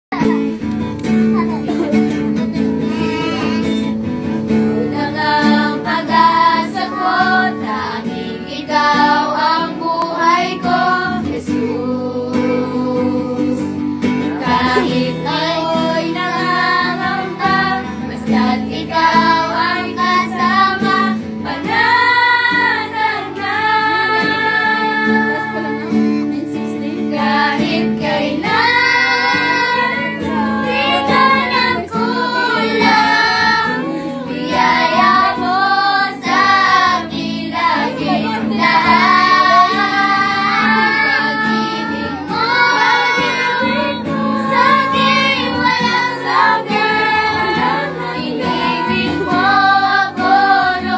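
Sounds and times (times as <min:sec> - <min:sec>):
acoustic guitar strumming: 0:00.1 - 0:50.9
children and women singing: 0:02.5 - 0:50.9.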